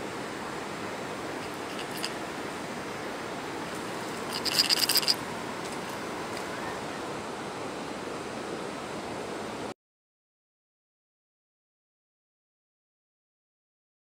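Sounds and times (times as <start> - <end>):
metallic hooks clinking: 1.4 - 2.2, 4.2 - 5.2.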